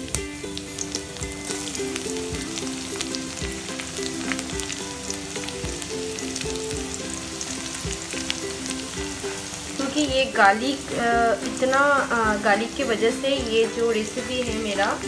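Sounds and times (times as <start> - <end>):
garlic sizzling in oil: 0.0 - 15.0.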